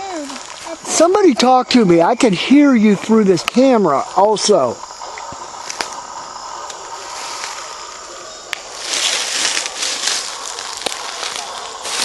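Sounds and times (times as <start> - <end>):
footsteps in dry leaves: 0.0 - 0.8, 7.1 - 8.0, 8.6 - 12.0
faint hiss: 0.0 - 12.0.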